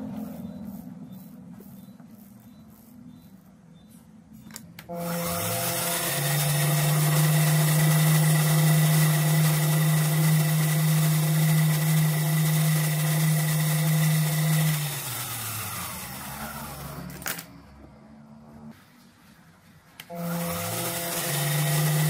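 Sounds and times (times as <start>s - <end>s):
lathe motor humming and whining: 4.9s - 17.2s, 20.1s - 22.0s.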